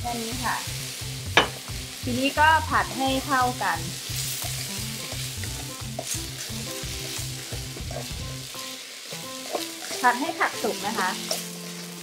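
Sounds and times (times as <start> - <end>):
vegetables sizzling in oil: 0.0 - 12.0
spatula scraping wok: 2.8 - 12.0.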